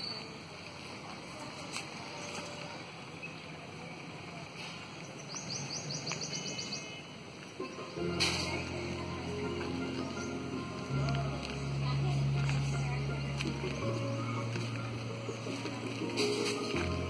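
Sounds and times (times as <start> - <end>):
outdoor background noise: 0.0 - 17.0
low multi-tone hum: 7.5 - 17.0.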